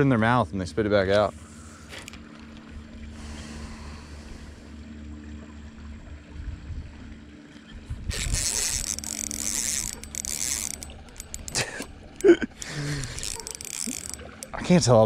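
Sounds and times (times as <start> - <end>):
fishing reel whirring and clicking: 8.1 - 15.0.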